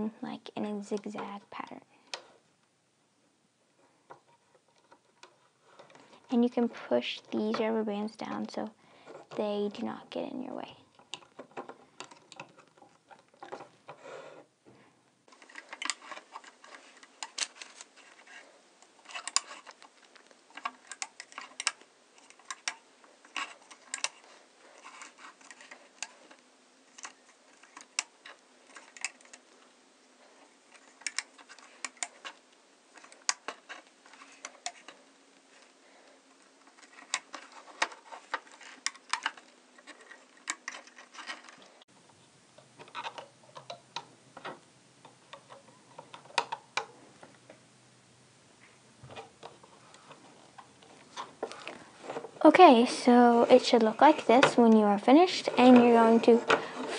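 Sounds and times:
rubber bands clicking on pegs: 10.9s - 14.0s, 15.4s - 29.6s, 42.6s - 47.5s.

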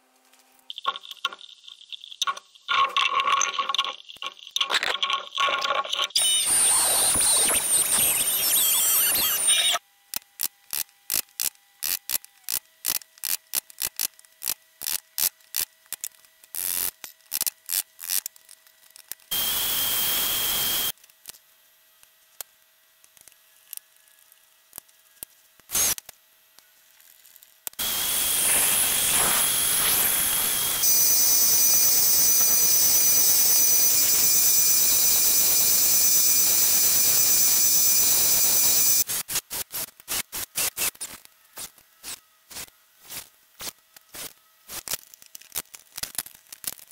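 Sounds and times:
power tool whining: 6.2s - 9.8s, 19.3s - 20.9s, 27.8s - 39.1s.

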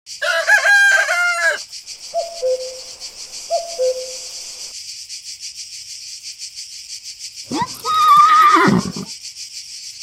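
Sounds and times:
crickets chirring: 0.1s - 10.0s
bird hooting: 2.0s - 4.7s.

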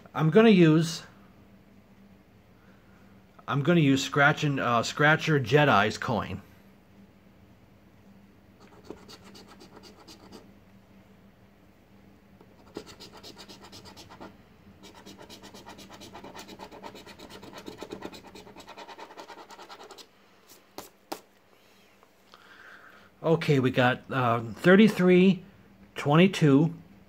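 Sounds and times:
coin scratching a ticket: 8.6s - 10.4s, 12.6s - 20.1s.

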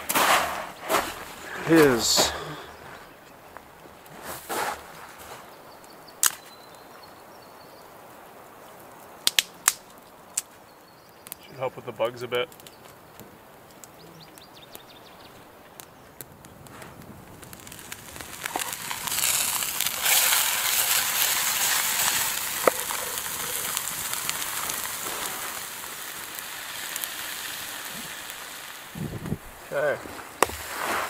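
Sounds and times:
crackles and pops: 0.0s - 7.2s, 8.6s - 31.0s
fish sizzling in a pan: 17.3s - 31.0s.

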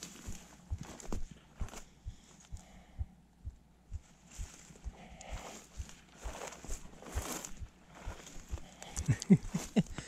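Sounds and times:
footsteps crunching on snow: 0.0s - 2.0s, 4.1s - 9.9s.

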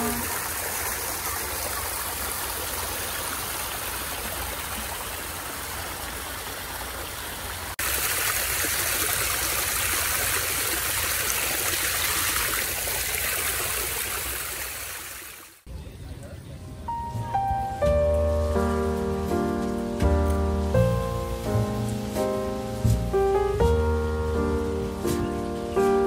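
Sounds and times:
stream water rushing over rock: 0.0s - 15.7s.

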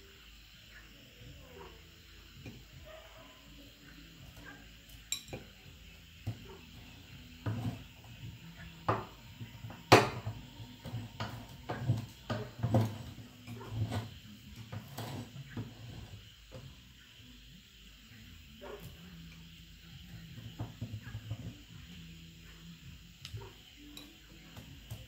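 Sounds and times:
metal grinder clanking: 6.2s - 8.2s, 8.8s - 16.6s.

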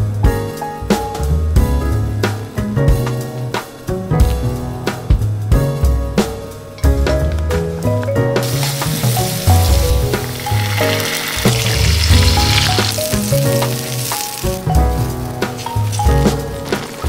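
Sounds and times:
chili oil sizzling in pan: 8.4s - 17.0s.

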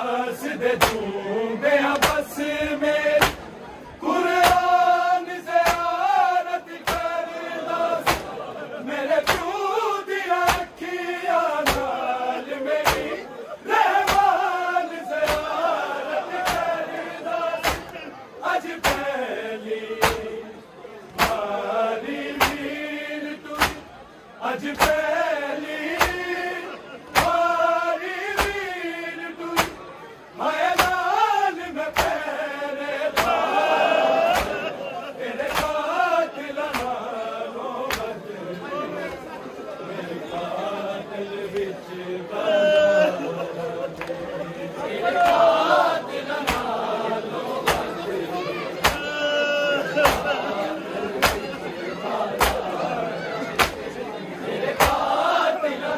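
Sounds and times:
men chanting a lament: 0.0s - 55.9s
hands beating chest: 0.8s - 1.0s, 2.0s - 2.3s, 3.2s - 3.4s, 4.4s - 4.8s, 5.6s - 6.0s, 6.8s - 7.1s, 8.0s - 8.3s, 9.2s - 9.5s, 10.4s - 10.7s, 11.6s - 11.9s, 12.8s - 13.2s, 14.0s - 14.3s, 15.2s - 15.5s, 16.4s - 16.7s, 17.6s - 18.0s, 18.8s - 19.1s, 20.0s - 20.3s, 21.2s - 21.5s, 22.4s - 22.6s, 23.6s - 23.8s, 24.7s - 25.0s, 26.0s - 26.2s, 27.2s - 27.5s, 28.4s - 28.6s, 29.6s - 29.8s, 30.8s - 31.0s, 31.9s - 32.2s, 33.1s - 33.4s, 34.3s - 34.7s, 35.5s - 35.8s, 36.7s - 37.0s, 46.4s - 46.7s, 47.7s - 47.9s, 48.8s - 49.1s, 50.0s - 50.3s, 51.2s - 51.5s, 52.4s - 52.6s, 53.6s - 53.8s, 54.8s - 55.0s.

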